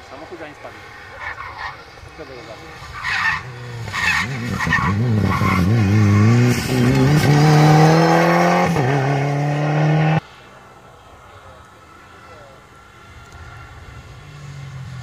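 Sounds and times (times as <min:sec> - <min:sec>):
rally car engine under hard throttle: 0:00.1 - 0:10.4.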